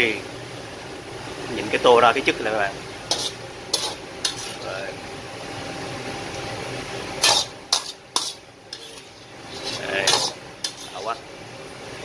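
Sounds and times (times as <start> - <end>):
metal ladle clanking on wok: 10.0 - 10.9.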